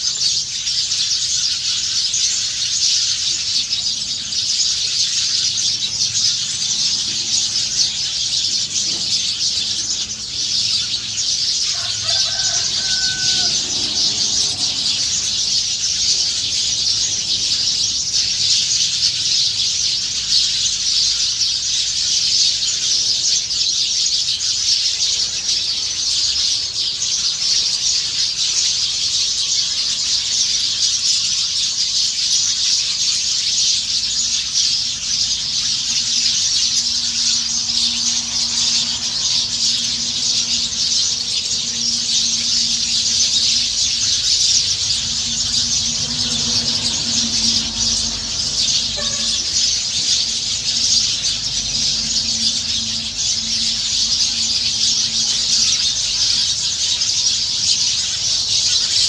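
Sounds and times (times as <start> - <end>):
flock of small birds chattering: 0.0 - 59.0
lower-pitched bird call: 34.8 - 56.4.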